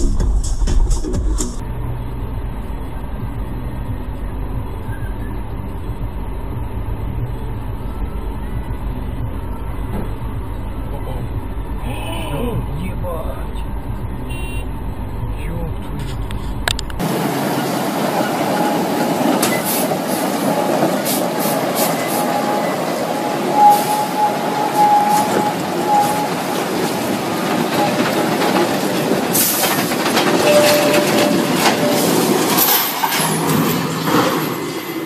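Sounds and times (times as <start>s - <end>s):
truck rumbling over rough ground: 0.0s - 35.0s
thin squealing tone: 20.5s - 28.1s, 30.4s - 33.7s.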